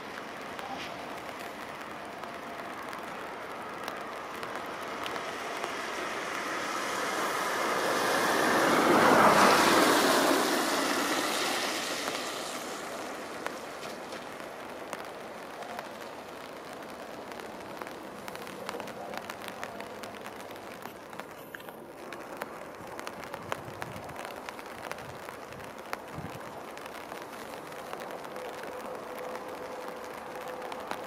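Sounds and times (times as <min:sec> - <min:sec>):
passing vehicle hiss: 0:00.0 - 0:21.9.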